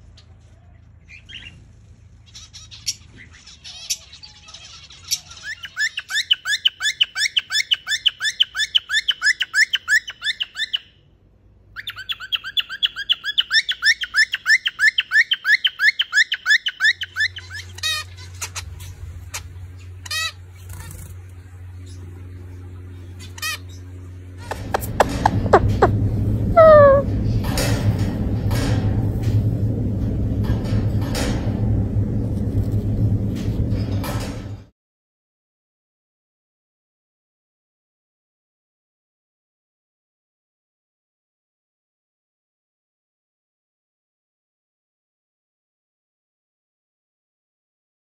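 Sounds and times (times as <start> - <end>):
pet birds rapid calls: 1.1 - 10.8, 23.1 - 26.0, 26.6 - 27.1
low hum: 19.0 - 34.7
bird chirps: 24.5 - 26.0, 26.6 - 27.1.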